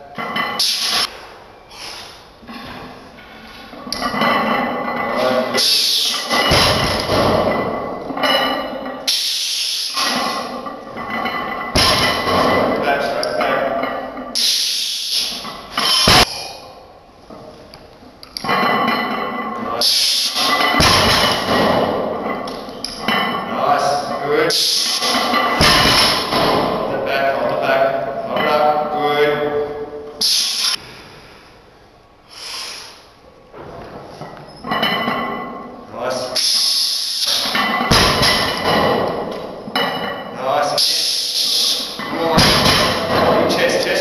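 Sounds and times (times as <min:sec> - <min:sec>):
barbell thudding on rubber platform: 0:06.3 - 0:08.6, 0:11.0 - 0:12.9, 0:15.8 - 0:16.3, 0:20.5 - 0:23.3, 0:25.1 - 0:27.0, 0:37.6 - 0:40.2, 0:42.3 - 0:43.6.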